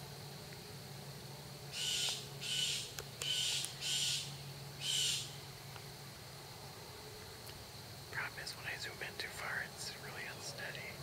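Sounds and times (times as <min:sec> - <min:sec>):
bird harsh raspy calls: 0:01.7 - 0:05.4.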